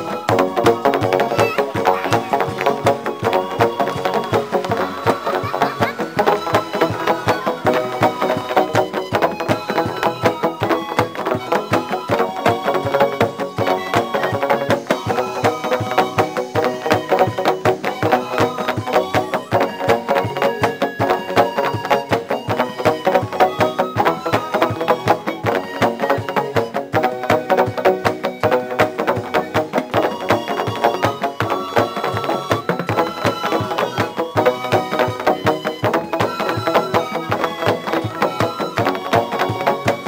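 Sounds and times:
bamboo percussion music: 0.0 - 40.0.

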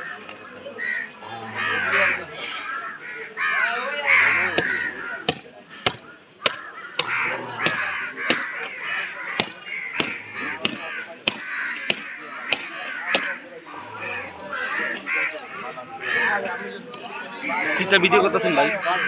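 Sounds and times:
crows cawing: 0.0 - 19.0
blade chopping meat and bone: 4.4 - 13.4.

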